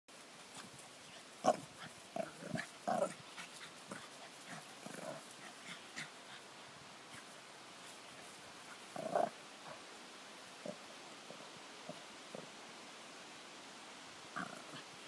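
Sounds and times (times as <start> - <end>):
small dog vocalising: 1.4 - 6.4, 14.3 - 15.0.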